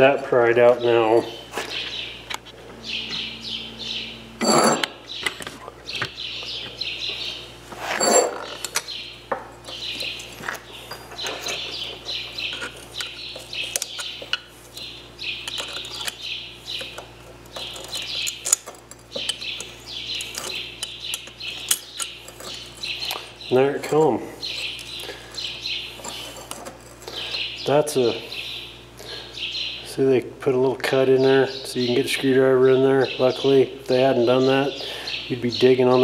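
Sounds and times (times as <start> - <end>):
birds chirping: 0.0 - 36.0
metallic clinks: 4.4 - 4.9
screwdriver scraping metal: 4.4 - 4.9.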